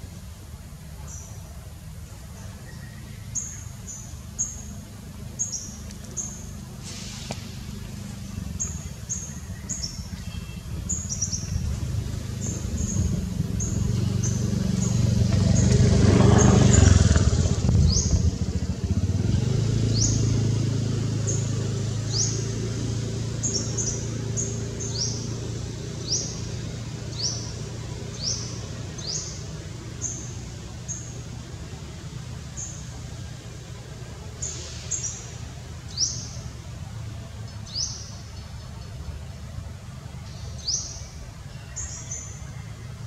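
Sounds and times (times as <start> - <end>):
bird chirping: 2.4 - 6.8, 7.9 - 18.4, 21.2 - 31.3
vehicle engine passing: 2.7 - 41.4.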